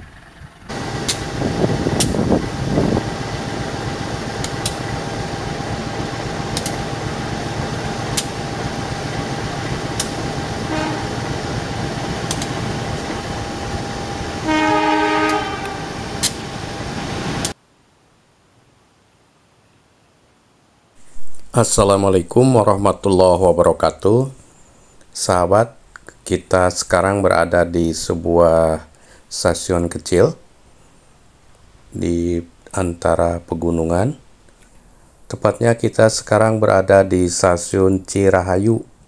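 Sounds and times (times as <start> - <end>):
locomotive engine and wheels running: 0.0 - 17.6
sharp clicks: 6.5 - 6.8, 10.0 - 10.2, 12.2 - 12.6
train horn: 10.0 - 13.2, 14.4 - 16.4.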